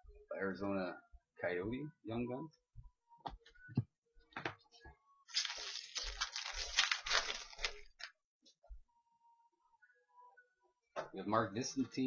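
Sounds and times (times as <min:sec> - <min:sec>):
foil wrapper crinkling: 0:05.3 - 0:08.2.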